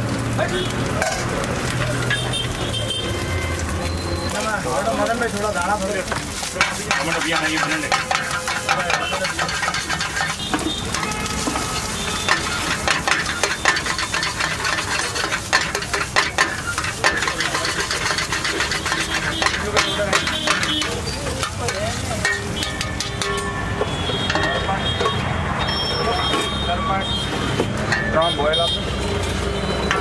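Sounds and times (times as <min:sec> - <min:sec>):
eggs sizzling: 0:00.0 - 0:25.9
metal spatula scraping a wok: 0:00.9 - 0:02.5, 0:06.3 - 0:26.6.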